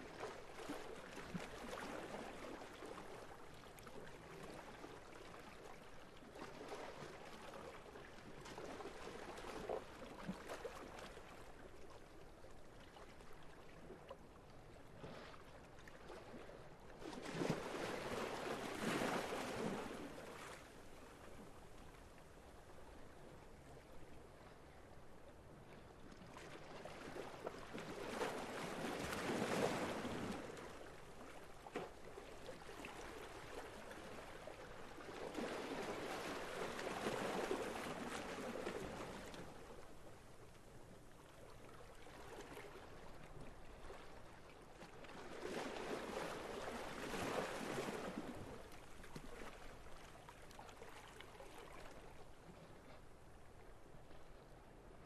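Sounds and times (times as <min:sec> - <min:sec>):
small sea waves washing in: 0:12.8 - 0:54.5.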